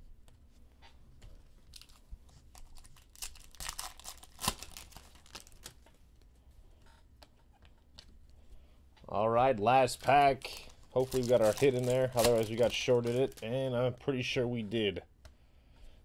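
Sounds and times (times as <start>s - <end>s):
wrapper crinkling: 1.7s - 5.9s, 9.9s - 13.8s
foil pack tearing: 2.9s - 5.8s, 10.1s - 13.4s.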